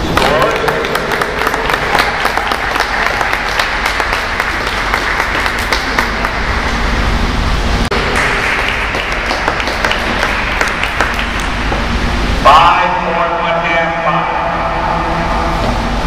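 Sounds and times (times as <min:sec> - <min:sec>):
audience applauding: 0:00.0 - 0:06.8, 0:07.9 - 0:11.7.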